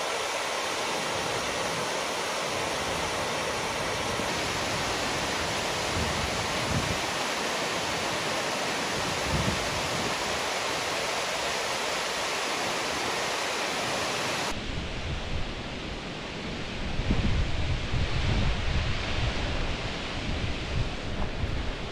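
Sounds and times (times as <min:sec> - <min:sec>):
waterfall rushing: 0:00.0 - 0:14.6
wind buffeting microphone: 0:03.9 - 0:07.2, 0:08.9 - 0:10.4, 0:14.6 - 0:21.9.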